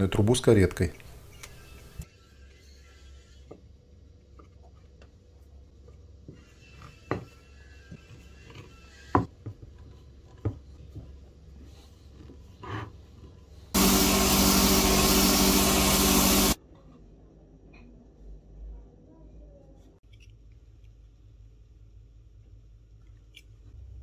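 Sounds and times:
belt sander running: 13.8s - 16.6s.

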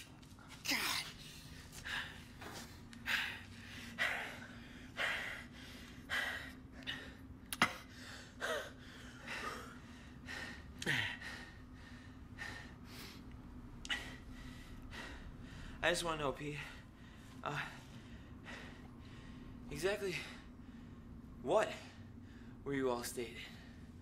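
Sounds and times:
low steady hum: 0.0s - 24.0s
men panting hard: 1.4s - 15.8s.

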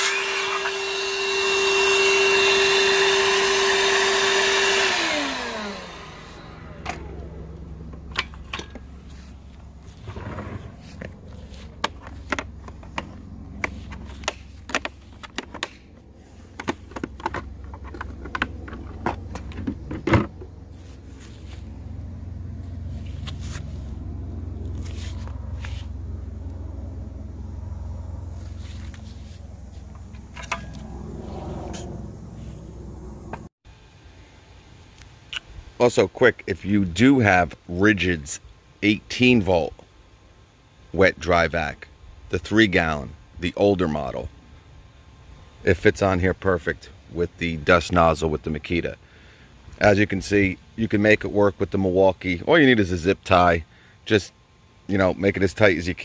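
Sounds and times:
circular saw running: 0.0s - 15.2s
vacuum running: 0.0s - 39.9s
low steady hum: 0.3s - 56.0s.

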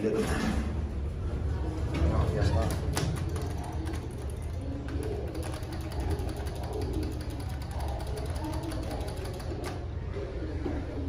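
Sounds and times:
machinery ticking and rattle: 2.6s - 9.8s.

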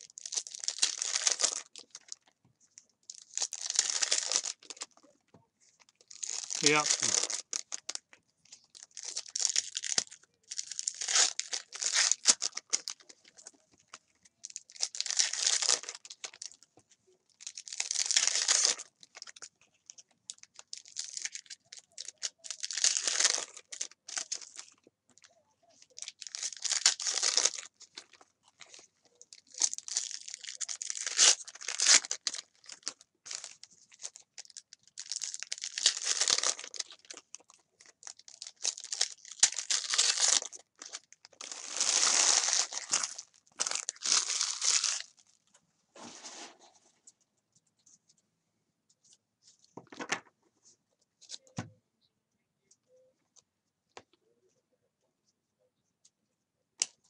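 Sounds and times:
foil wrappers tearing and crinkling: 0.0s - 2.2s, 3.1s - 4.9s, 6.0s - 8.0s, 8.7s - 13.1s, 14.6s - 16.4s, 17.4s - 19.4s, 20.4s - 24.8s, 26.0s - 28.8s, 29.4s - 45.2s.

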